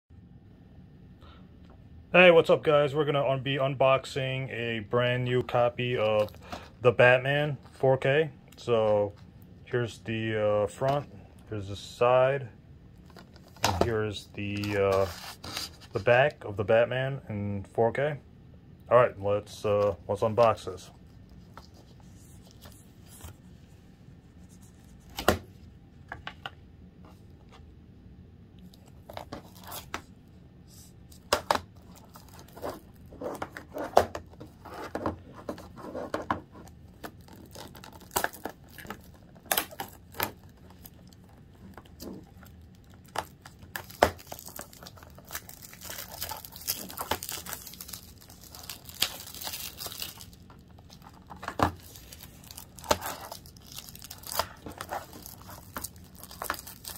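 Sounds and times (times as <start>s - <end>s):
plastic shrink wrap crinkling: 31.1s - 34.9s, 36.6s - 56.9s.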